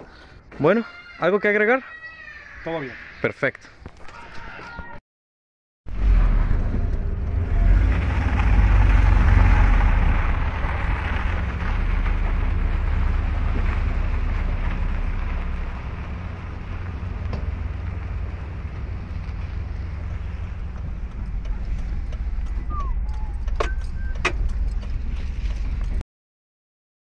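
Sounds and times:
vehicle running rumble: 0:05.9 - 0:26.0.

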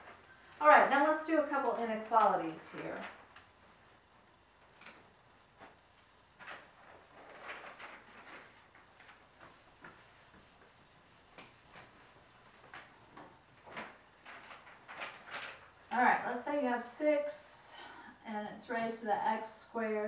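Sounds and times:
cloth wiping a whiteboard: 0:04.9 - 0:15.1.

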